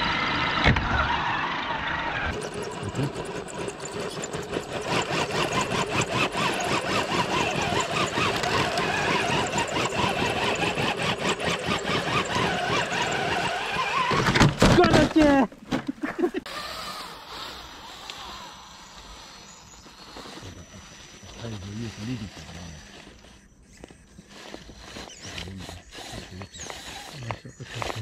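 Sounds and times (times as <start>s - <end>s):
electric motor and gearbox whining: 0.0s - 28.0s
rapid clicking and crackling: 2.3s - 15.3s.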